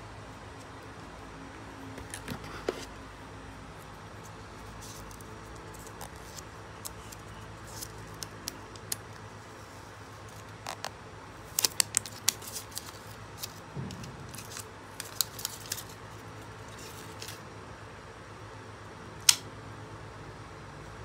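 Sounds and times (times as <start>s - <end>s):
steady low background hum: 0.0s - 21.0s
plastic adapter and cardboard handled: 1.9s - 2.9s
soft thud: 13.7s - 14.6s.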